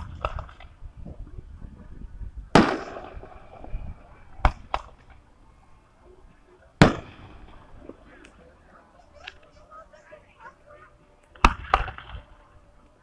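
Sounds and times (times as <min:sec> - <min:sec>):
fireworks bangs: 0:02.5 - 0:03.8, 0:06.8 - 0:07.7.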